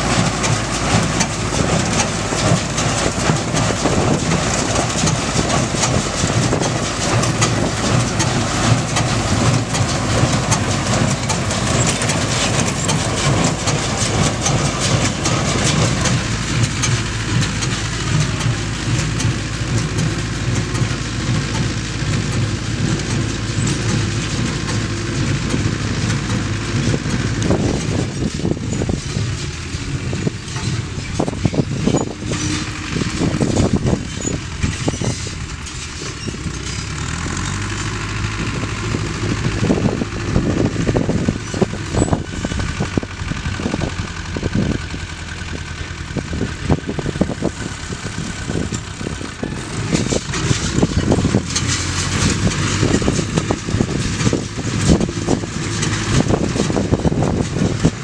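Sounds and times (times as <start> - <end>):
baler clattering rhythmically: 0.0 - 28.0
tractor diesel engine running: 0.0 - 58.0.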